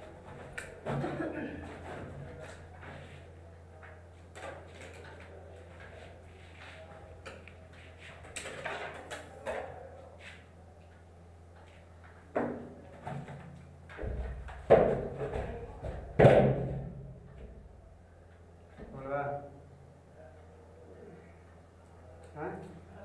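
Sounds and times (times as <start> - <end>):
steady low hum: 0.0 - 23.0
knocks and clatter: 12.3 - 17.0.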